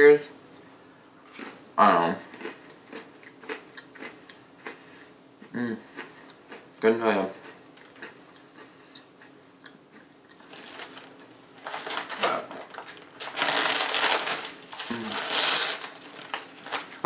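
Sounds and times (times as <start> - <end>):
plastic wrapper crinkling: 10.4 - 17.0.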